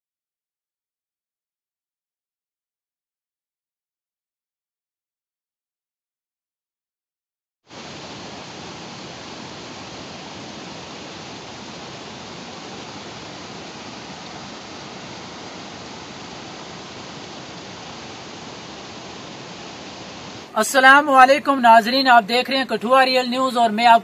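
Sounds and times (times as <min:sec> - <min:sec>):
floodwater rushing over rocks: 0:07.7 - 0:24.0.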